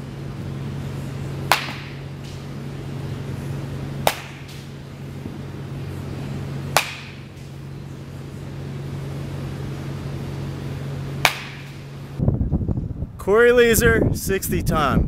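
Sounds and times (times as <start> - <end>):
steady low hum: 0.0 - 15.0
baseball bat cracking ball: 1.3 - 2.6, 3.9 - 5.4, 6.6 - 7.6, 11.1 - 11.9.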